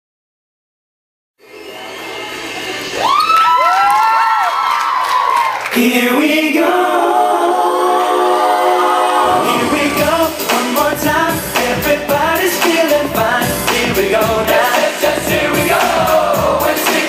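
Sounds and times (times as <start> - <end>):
person singing: 5.7 - 17.0
steady drum beat: 9.6 - 17.0.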